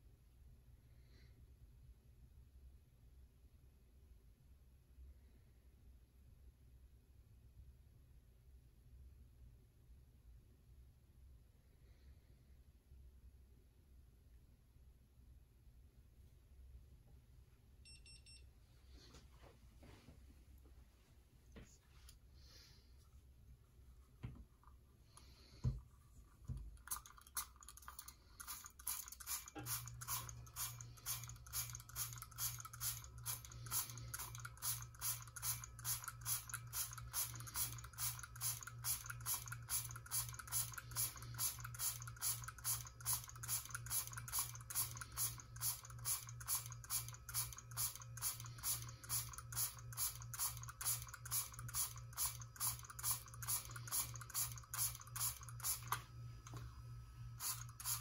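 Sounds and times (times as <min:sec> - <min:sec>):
spray bottle trigger clicking: 0:28.4 - 0:56.0, 0:57.4 - 0:58.0.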